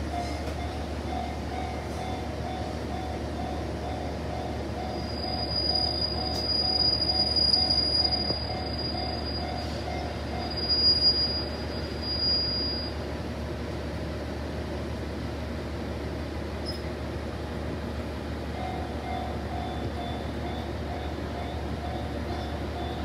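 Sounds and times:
train wheels squealing: 3.9s - 13.0s, 16.6s - 16.9s, 18.8s - 23.0s.

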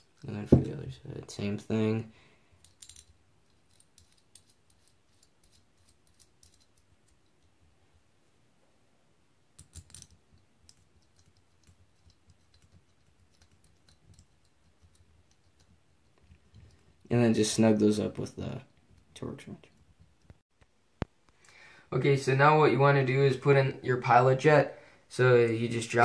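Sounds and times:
clicks of small metal parts: 2.6s - 7.2s.

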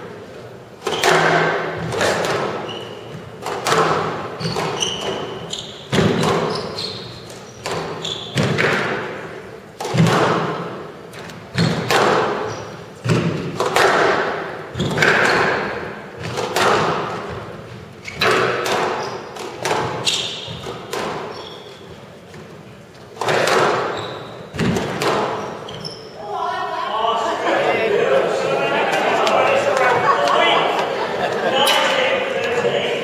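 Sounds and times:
squash ball knocks: 11.6s - 12.4s, 13.0s - 17.2s, 18.2s - 20.0s, 23.2s - 23.9s, 24.6s - 25.4s.

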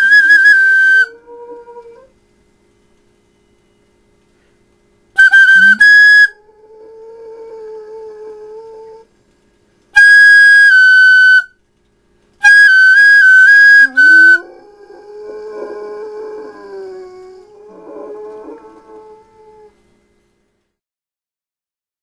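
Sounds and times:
dog howling: 0.0s - 2.1s, 5.6s - 9.1s, 13.4s - 19.8s
flute playing high notes: 5.2s - 6.4s, 10.0s - 11.6s, 12.4s - 15.2s.

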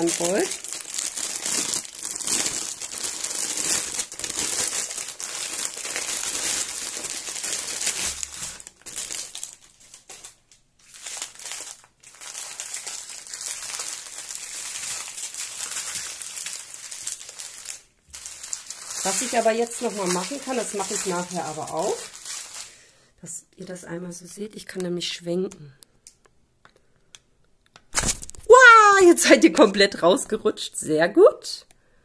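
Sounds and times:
plastic packaging crinkling: 0.0s - 22.8s, 27.9s - 29.0s.

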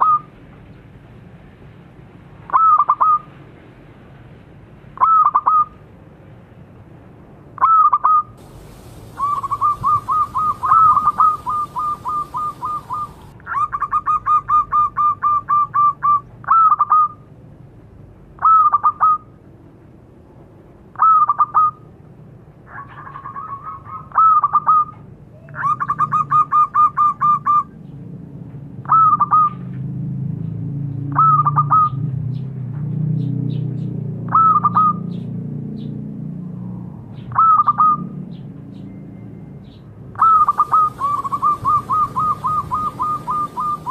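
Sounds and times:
dove cooing: 7.6s - 17.2s, 22.7s - 27.6s, 40.2s - 43.9s.

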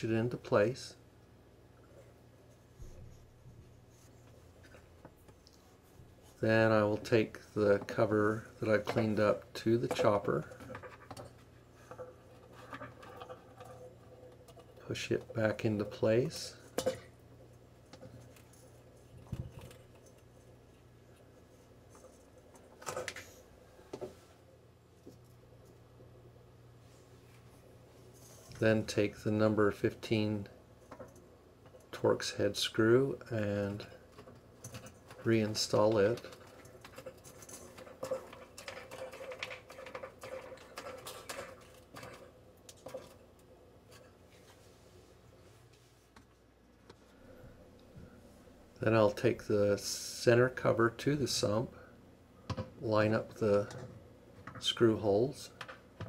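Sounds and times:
plastic parts clicking and knocking: 8.6s - 15.9s, 33.7s - 44.0s, 52.5s - 52.8s, 55.5s - 56.0s.

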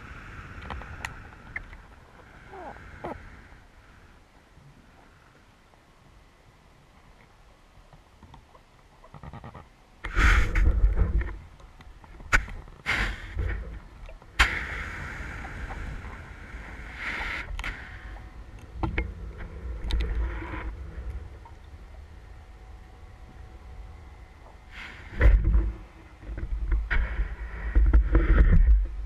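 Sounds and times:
underwater rumbling and bubbling: 0.0s - 29.0s
underwater clicks and knocks: 10.6s - 12.8s, 18.6s - 20.2s.

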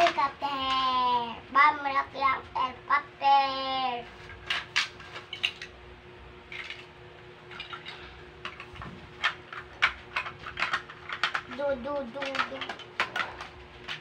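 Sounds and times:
plastic bricks clattering: 6.5s - 6.9s, 7.5s - 14.0s
person speaking: 11.4s - 13.5s.

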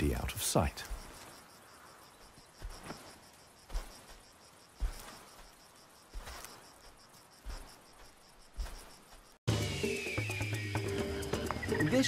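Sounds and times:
insects chirping: 0.0s - 12.0s
footfalls crunching dry grass: 0.7s - 9.4s.

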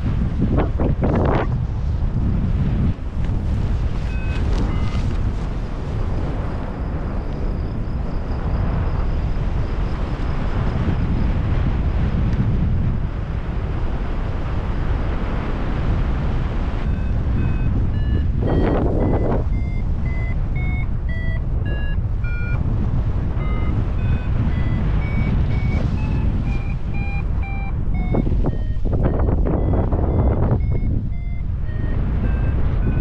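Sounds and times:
wind noise on microphone: 0.0s - 33.0s
variometer beeping: 4.0s - 5.4s, 16.8s - 33.0s.

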